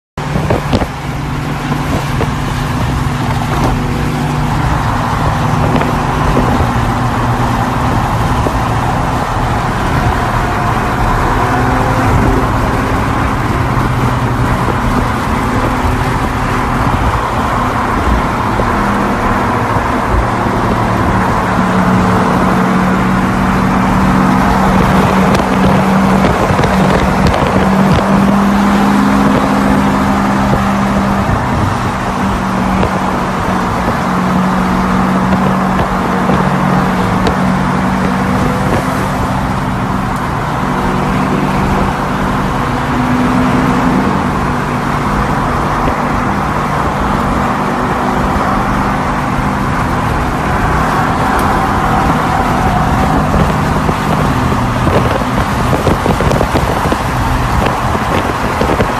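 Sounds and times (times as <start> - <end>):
car engine drone: 0.2 - 58.9
tyre and wind roar: 0.2 - 58.9.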